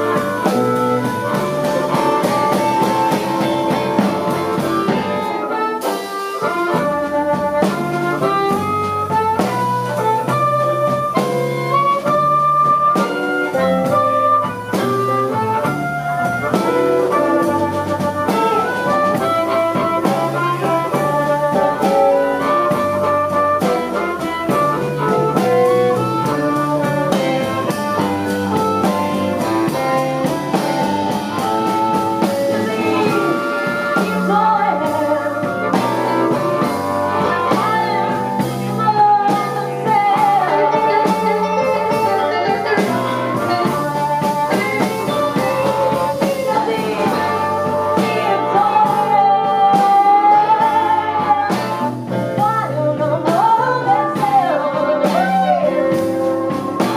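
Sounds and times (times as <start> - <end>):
electric blues band: 0.0 - 56.9
woman singing: 12.9 - 56.9.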